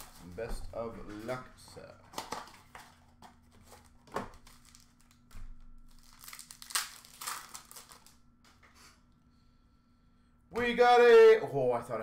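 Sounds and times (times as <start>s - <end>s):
plastic wrapper crinkling and tearing: 2.1s - 8.3s.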